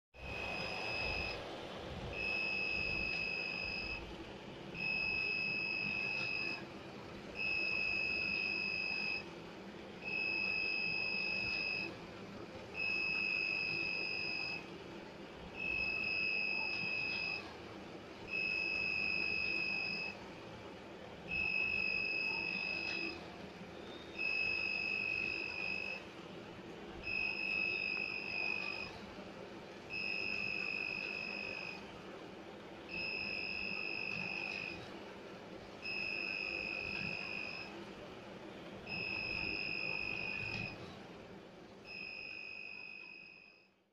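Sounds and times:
electronic buzzer beeping: 0.3 - 1.4, 2.2 - 4.0, 4.8 - 6.6, 7.4 - 9.2, 10.1 - 11.9, 12.8 - 14.6, 15.6 - 17.4, 18.3 - 20.2, 21.3 - 23.2, 24.1 - 26.0, 27.1 - 28.9, 29.9 - 31.8, 32.9 - 34.8, 35.9 - 37.7, 38.9 - 40.8, 41.9 - 43.6.

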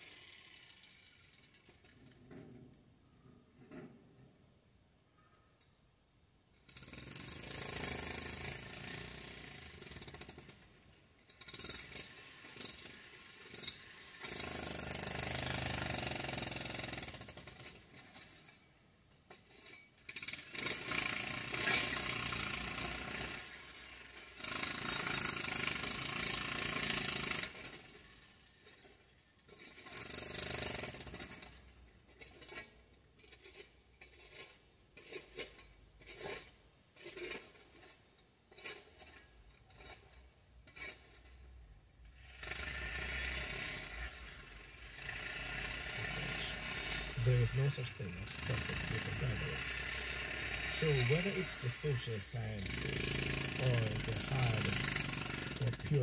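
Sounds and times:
jackhammer breaking concrete: 6.7 - 10.6, 11.4 - 18.5, 20.1 - 31.6, 42.2 - 51.7, 52.4 - 56.0.

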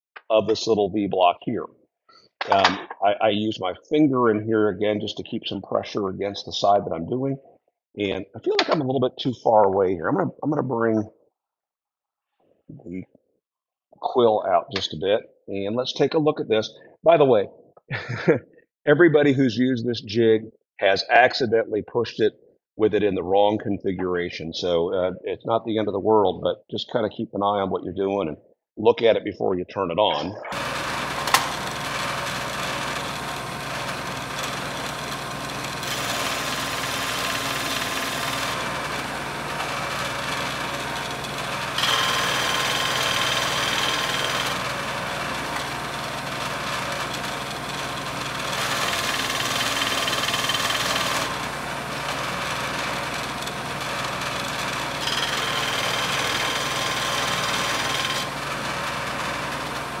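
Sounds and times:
sanding disc motor humming: 30.5 - 60.0.

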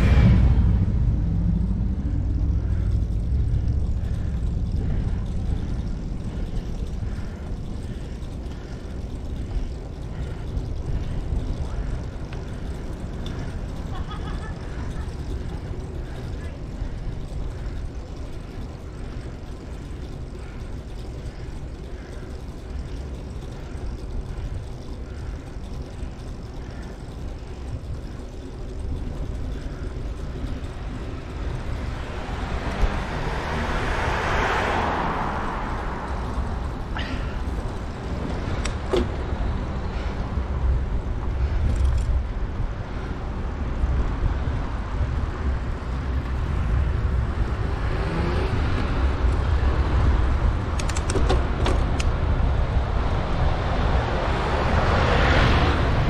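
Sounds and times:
vehicle passing close: 0.0 - 40.6, 45.0 - 50.8, 51.9 - 56.0
bicycle rumbling on road: 0.0 - 56.0.

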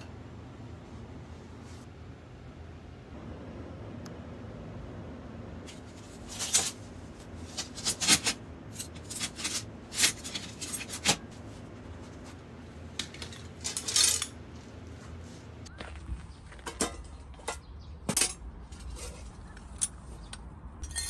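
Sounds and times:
metal rods clinking: 7.5 - 11.2, 12.9 - 14.6.

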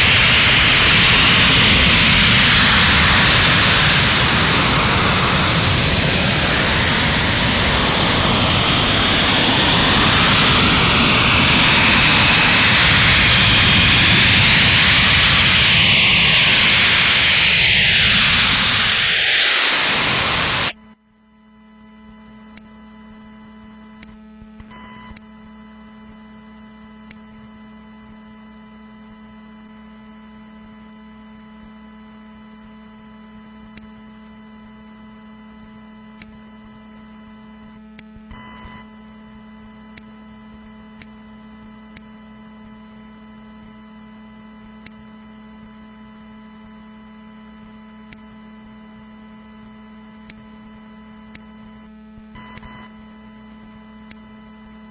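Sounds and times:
harsh noisy electronic sound: 0.0 - 20.8.

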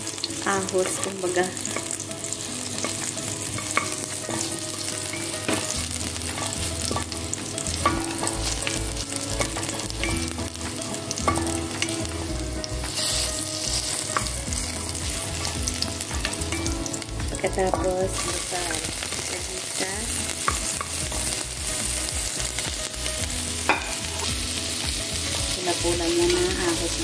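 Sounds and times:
garlic sizzling in hot oil: 0.0 - 27.0
spatula scraping and knocking pan: 2.8 - 19.3, 23.6 - 25.0.

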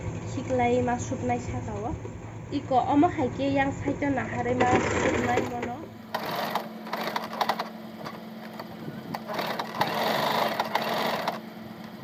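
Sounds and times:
sewing machine stitching: 6.1 - 11.4.

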